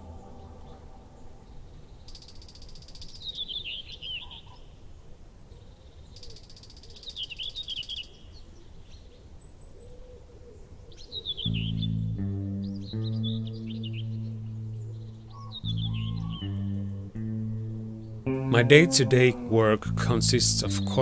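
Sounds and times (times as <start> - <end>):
low outdoor rumble: 0.0 - 2.1, 11.9 - 21.0.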